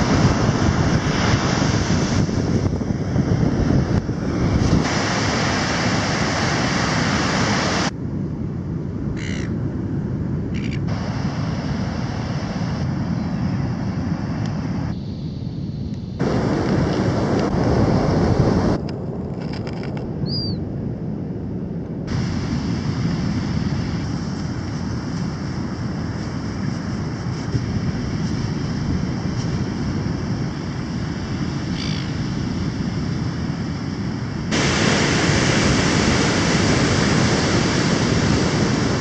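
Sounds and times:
surf: 0.0 - 7.9, 22.1 - 39.0
wind on microphone: 0.0 - 39.0
short bird calls: 9.2 - 9.5, 31.8 - 32.2.

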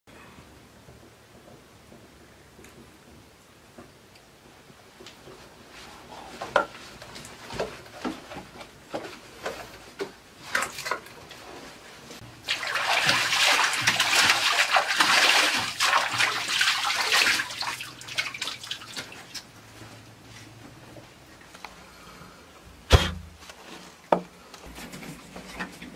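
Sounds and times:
water splashing: 12.2 - 19.5
water dripping: 12.3 - 19.5.

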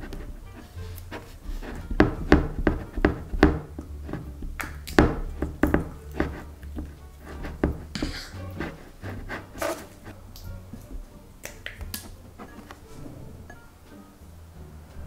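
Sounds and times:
spoon scraping glass bowl: 5.4 - 10.2
plastic glue bottle squeezed: 7.4 - 10.1.

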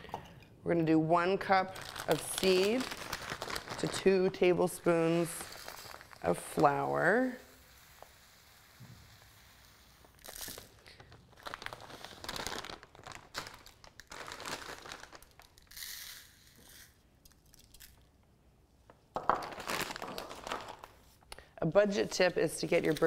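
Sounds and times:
plastic bag crinkling: 1.6 - 6.6, 10.1 - 16.0, 19.2 - 21.2
seed pouring into glass bowl: 5.0 - 10.7, 15.6 - 17.9.

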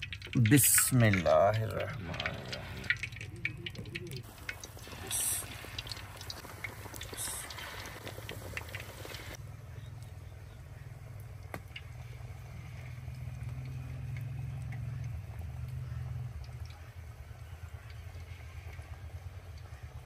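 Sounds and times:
fish sizzling in hot oil: 0.0 - 9.4
low steady rumble: 0.0 - 20.0.

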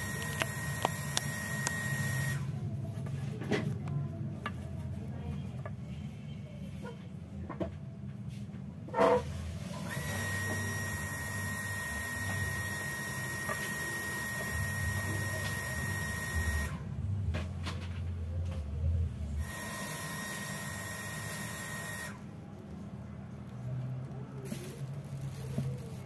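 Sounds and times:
small electric motor whining: 0.0 - 2.5, 9.8 - 16.8, 19.4 - 22.2
handling noise: 22.2 - 26.0.

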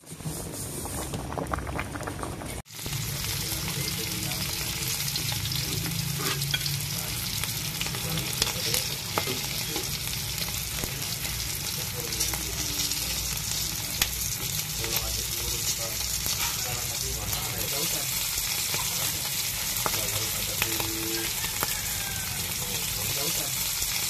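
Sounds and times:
fish sizzling in oil: 1.6 - 24.0
metal spatula scraping pan: 5.6 - 6.8, 16.2 - 16.8.

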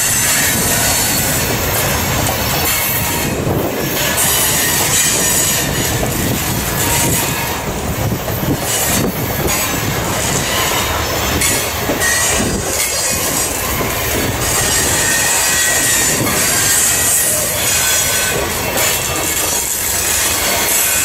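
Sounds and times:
train wheels rumbling over rails: 0.0 - 21.0
high-pitched wheel squeal: 8.7 - 21.0.

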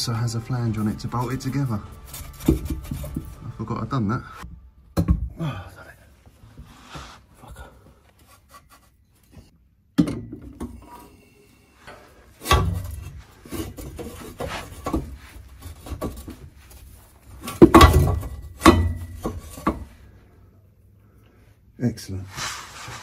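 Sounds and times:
metal scraping and knocking: 0.0 - 5.2, 11.9 - 20.1.

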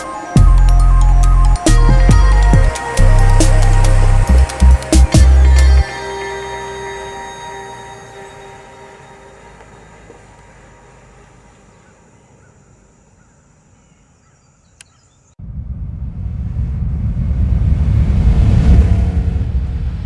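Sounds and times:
car engine driving away: 5.7 - 13.2, 15.4 - 20.0
deep rumbling sound effect: 15.4 - 20.0.

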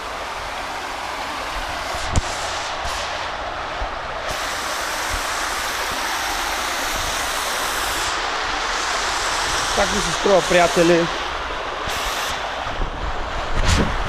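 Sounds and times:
water rushing over weir: 0.0 - 14.0.

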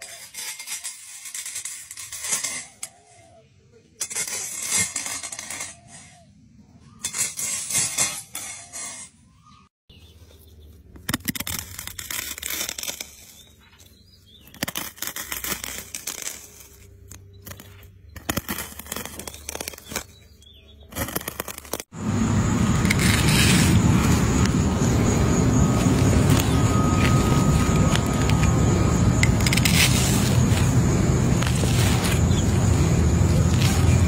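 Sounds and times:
snail eggs crackling and popping: 14.4 - 20.2, 20.9 - 21.9.

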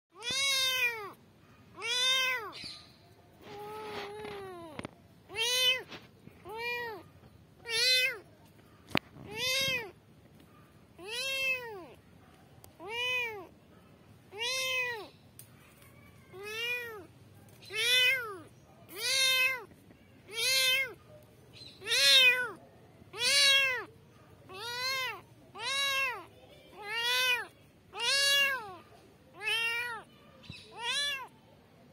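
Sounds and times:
kitten meowing: 0.2 - 1.2, 1.8 - 2.6, 3.4 - 5.9, 6.5 - 7.0, 7.6 - 8.2, 9.2 - 10.0, 11.0 - 12.0, 12.8 - 13.5, 14.3 - 15.1, 16.3 - 17.1, 17.7 - 19.7, 20.3 - 21.0, 21.8 - 23.9, 24.5 - 31.3.

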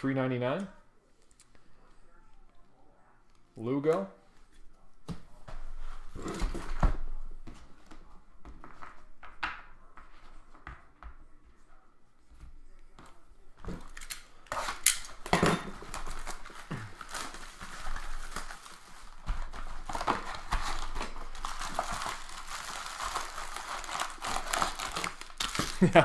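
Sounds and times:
foil wrappers crinkling and tearing: 13.8 - 26.0.

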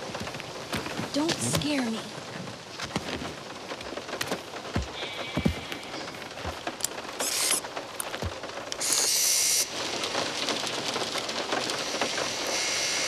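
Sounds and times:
heavy rain on car roof: 0.0 - 13.0
short hissing bursts: 7.2 - 7.6, 8.8 - 9.7.

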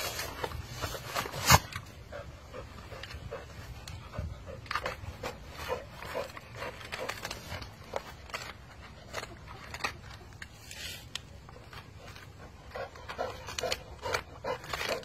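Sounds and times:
dog chewing coconut husk: 1.8 - 10.6, 11.2 - 15.0
coconut fibre ripping: 4.6 - 15.0.

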